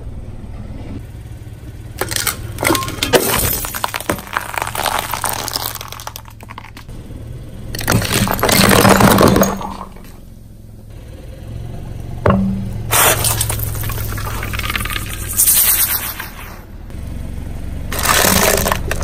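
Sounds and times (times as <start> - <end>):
cracking and squelching: 2.0 - 6.9, 7.8 - 10.2, 12.9 - 16.5, 17.9 - 19.0
tyre crushing objects: 2.0 - 6.9, 7.8 - 10.1, 17.9 - 19.0.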